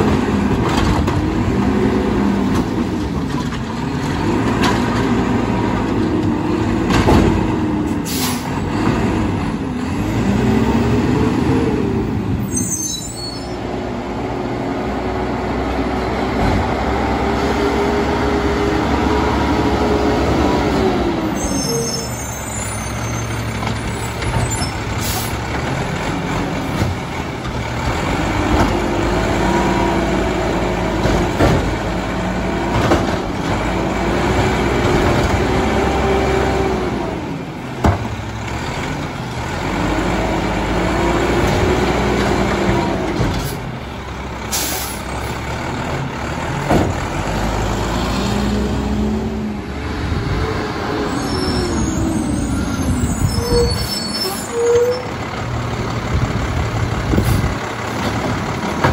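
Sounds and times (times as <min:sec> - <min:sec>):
diesel engine revving: 0:00.0 - 0:58.9
air brakes hissing: 0:08.0 - 0:08.6, 0:44.5 - 0:45.1.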